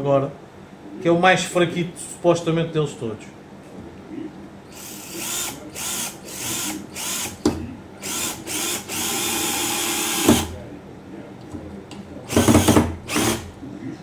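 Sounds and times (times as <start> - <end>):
cordless drill driving screw: 4.7 - 7.4, 8.0 - 10.5, 12.3 - 13.5.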